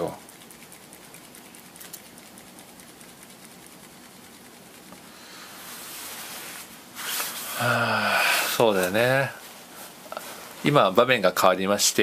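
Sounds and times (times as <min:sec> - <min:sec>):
faint hiss: 0:05.0 - 0:12.0.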